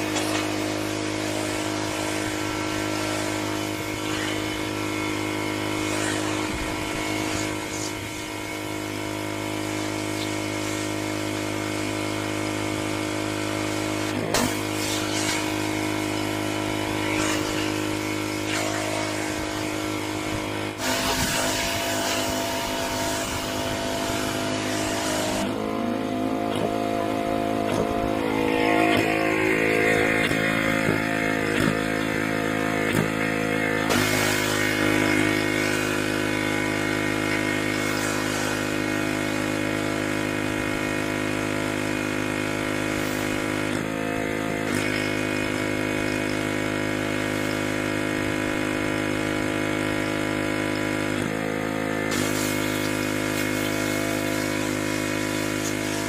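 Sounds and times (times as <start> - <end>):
pressure washer engine hum: 0.0 - 56.0
water jet hissing: 20.8 - 25.6, 30.2 - 38.9, 52.1 - 56.0.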